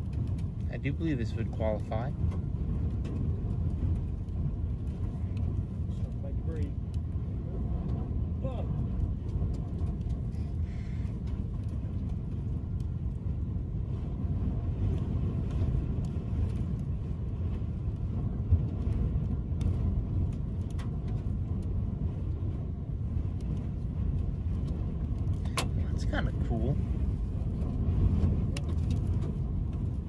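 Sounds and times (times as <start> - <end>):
wind buffeting a vehicle: 0.0 - 30.0
grit ticking against vehicle: 17.6 - 30.0.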